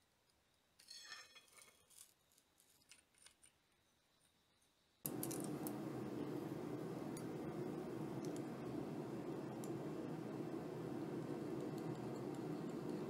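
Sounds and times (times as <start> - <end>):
steady rushing noise: 5.1 - 13.0.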